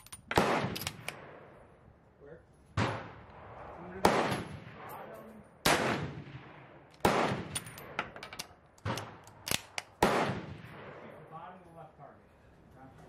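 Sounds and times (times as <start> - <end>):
rifle shots with echo: 0.2 - 1.7, 2.8 - 11.3
rifle bolt clicking: 7.6 - 10.0.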